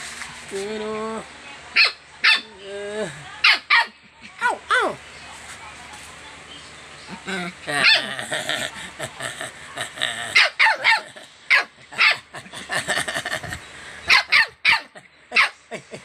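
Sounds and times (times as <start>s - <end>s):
puppy yipping: 1.8s - 2.5s, 14.1s - 15.6s.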